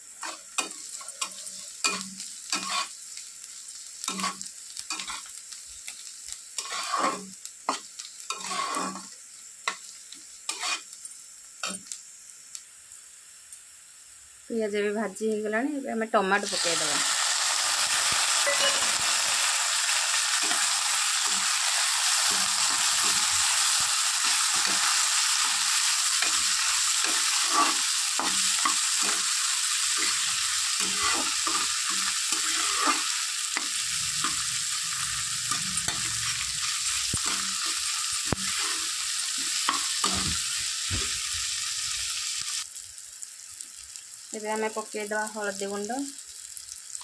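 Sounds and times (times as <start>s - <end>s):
food sizzling in oil: 0.0s - 47.0s
spatula scraping pan: 0.2s - 3.0s, 4.1s - 5.3s, 6.6s - 9.1s, 10.5s - 10.9s, 22.1s - 29.3s, 29.9s - 40.4s.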